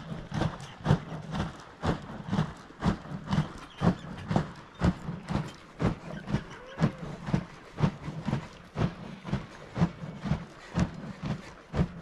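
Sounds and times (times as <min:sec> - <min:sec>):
liquid sloshing and thudding in churn: 0:00.0 - 0:12.0.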